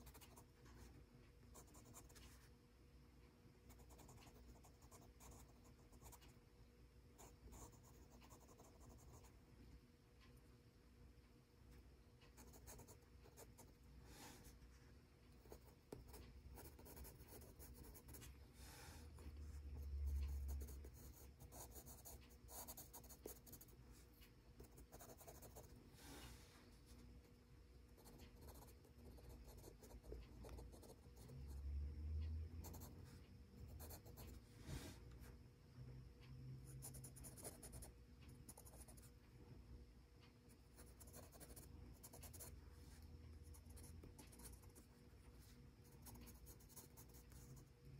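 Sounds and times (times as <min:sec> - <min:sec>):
pencil scratching on paper: 0:15.4 - 0:18.3, 0:19.2 - 0:23.8, 0:24.6 - 0:25.8, 0:28.0 - 0:31.3, 0:32.6 - 0:32.9, 0:40.8 - 0:42.5, 0:43.5 - 0:44.8.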